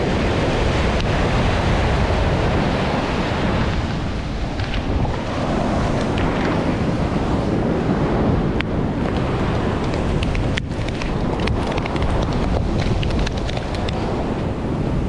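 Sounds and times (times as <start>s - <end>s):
heavy surf breaking: 0.0s - 15.0s
wind buffeting microphone: 0.0s - 15.0s.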